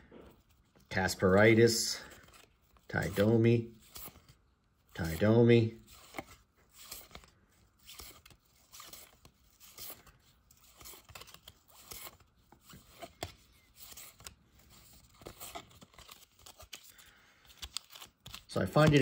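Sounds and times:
cards sliding against each other: 0:05.0 - 0:19.0.

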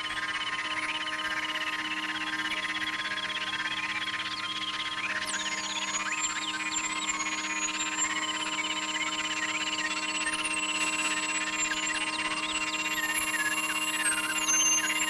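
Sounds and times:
sine-tone drones: 0:00.0 - 0:15.0.

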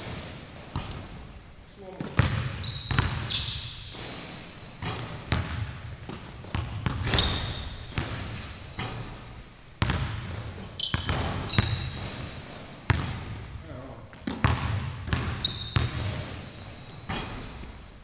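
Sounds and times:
basketballs bouncing on wooden floor: 0:00.0 - 0:18.0
sneakers squeaking on floor: 0:00.0 - 0:18.0.

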